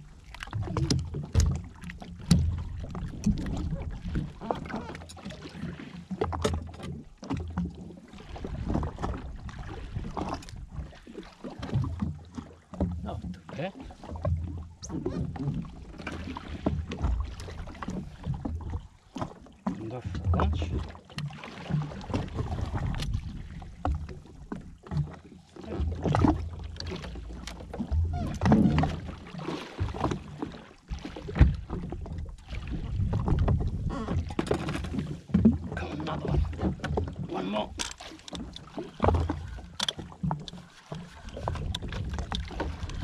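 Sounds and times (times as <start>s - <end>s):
water slapping against hull: 0.0s - 43.0s
fishing tackle knocking and clattering: 37.7s - 40.6s.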